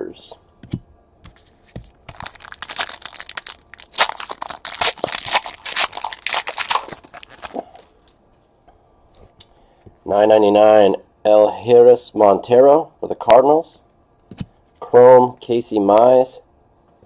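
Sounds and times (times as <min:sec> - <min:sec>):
foil wrapper tearing and crinkling: 0:02.1 - 0:07.8.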